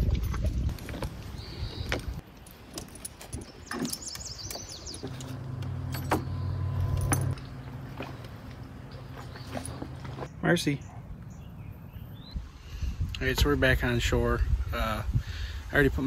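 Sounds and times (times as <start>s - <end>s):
knocks and clicks in canoe: 1.8s - 6.3s
dog tags jingling: 4.9s - 7.4s
low steady hum: 4.9s - 12.1s.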